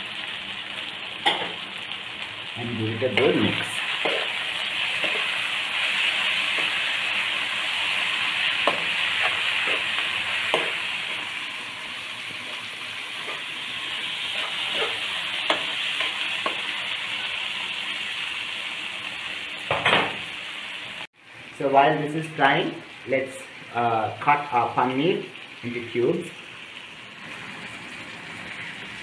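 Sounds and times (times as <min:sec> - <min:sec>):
vegetables sizzling in oil: 0:00.0 - 0:29.0
spatula stirring: 0:03.1 - 0:11.4, 0:12.4 - 0:16.7.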